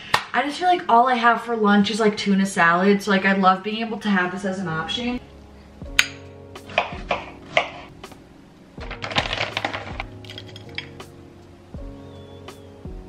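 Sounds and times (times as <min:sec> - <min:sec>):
soft background music: 0:00.4 - 0:13.0
granola pouring: 0:08.8 - 0:11.0.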